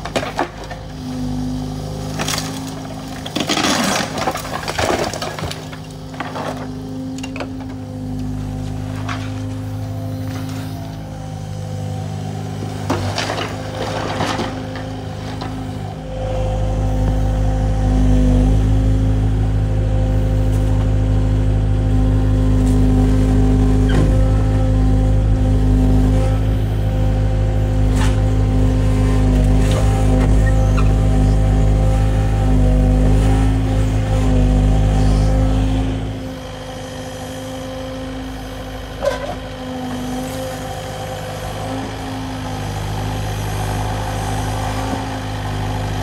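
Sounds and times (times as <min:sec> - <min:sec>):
diesel engine running: 0:00.0 - 0:46.0
stone and rubble falling: 0:03.3 - 0:05.8.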